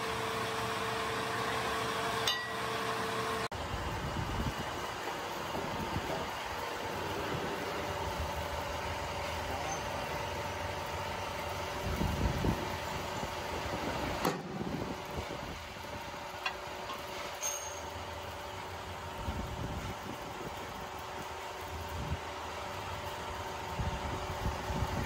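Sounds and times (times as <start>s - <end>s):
hydraulic press humming: 0.0s - 3.6s.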